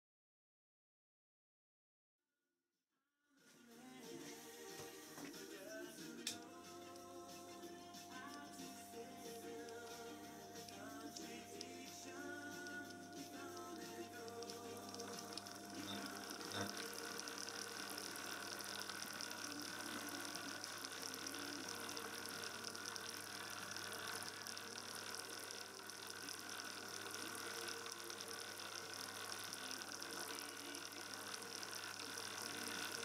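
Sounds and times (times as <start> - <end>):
bench lathe whirring hum: 8.6 - 33.0.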